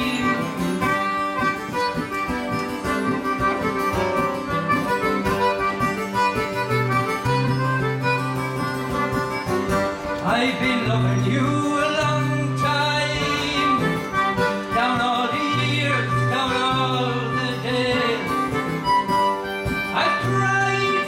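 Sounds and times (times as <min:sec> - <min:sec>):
man singing: 0:00.0 - 0:01.4, 0:10.1 - 0:18.9, 0:19.8 - 0:21.0
acoustic guitar: 0:00.0 - 0:21.0
concertina: 0:00.0 - 0:21.0.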